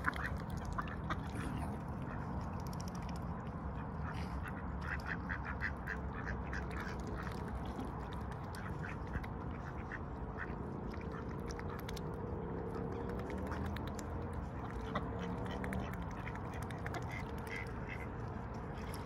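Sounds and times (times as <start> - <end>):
low steady rumble: 0.0 - 19.0
swan bill clicking: 12.8 - 18.0.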